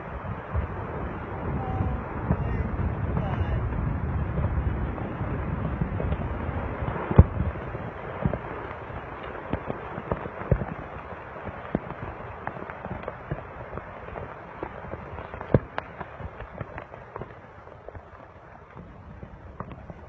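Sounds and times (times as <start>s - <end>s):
volcano low rumble: 0.0s - 20.0s
sharp cracks and pops: 6.0s - 20.0s.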